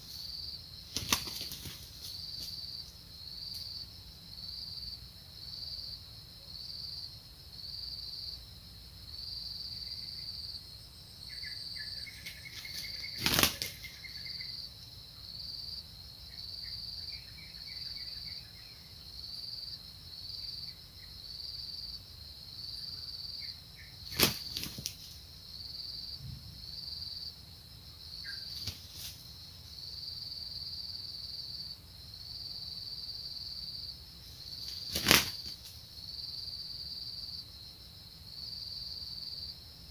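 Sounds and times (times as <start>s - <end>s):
high insect buzz: 0.0s - 39.9s
wing flapping: 0.9s - 2.6s, 12.1s - 14.2s, 24.0s - 25.2s, 28.5s - 29.3s, 34.5s - 35.8s
faint bird chirps: 11.2s - 15.5s, 16.3s - 22.0s, 22.6s - 25.2s, 28.0s - 29.2s.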